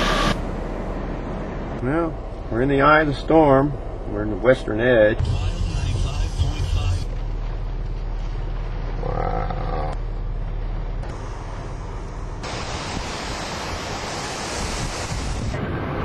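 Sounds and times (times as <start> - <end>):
strong wind on microphone: 14.4 - 16.0.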